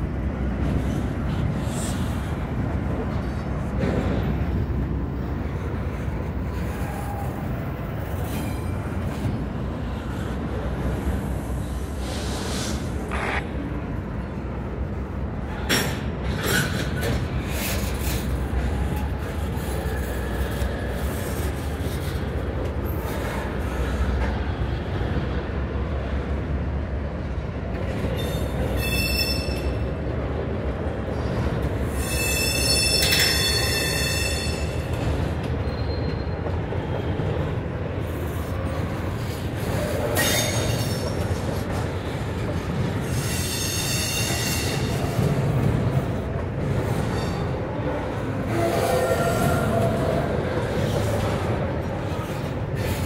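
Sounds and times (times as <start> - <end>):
train wheels rumbling on rail: 0.0 - 53.0
wheel squeal: 28.2 - 29.8, 31.9 - 36.5, 43.0 - 45.1.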